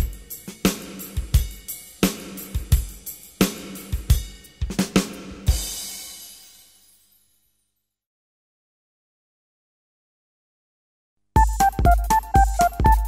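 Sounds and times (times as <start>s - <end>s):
drum kit playing a steady beat: 0.0s - 6.5s, 11.4s - 13.0s.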